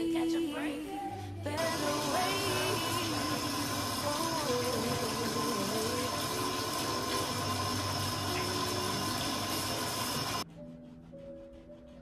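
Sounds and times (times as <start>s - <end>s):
shower water spraying: 1.5s - 10.4s.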